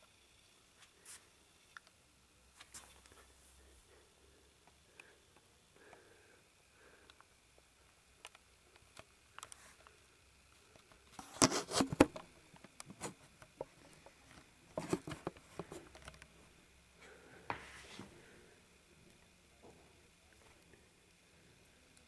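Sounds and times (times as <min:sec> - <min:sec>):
handling rustling and clicking: 0:10.7 - 0:16.3.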